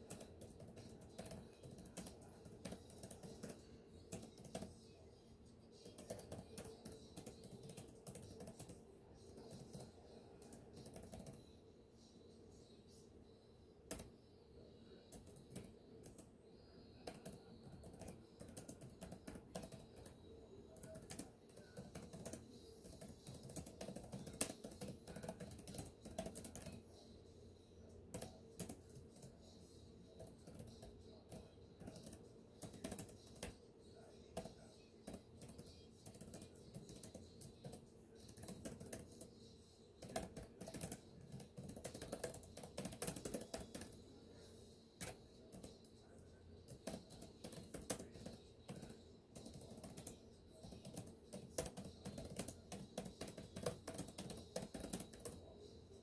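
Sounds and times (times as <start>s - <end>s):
typing on computer keyboard: 0.0s - 4.8s, 5.8s - 8.8s, 9.4s - 11.4s, 13.9s - 14.1s, 15.0s - 16.3s, 17.0s - 26.8s, 28.1s - 29.4s, 30.1s - 33.6s, 34.3s - 39.4s, 40.0s - 44.0s, 45.0s - 46.0s, 46.6s - 55.5s.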